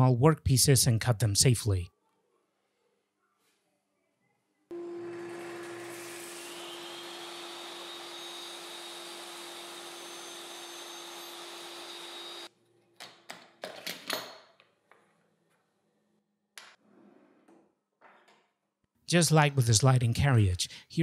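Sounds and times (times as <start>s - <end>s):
table saw running: 4.7s - 12.5s.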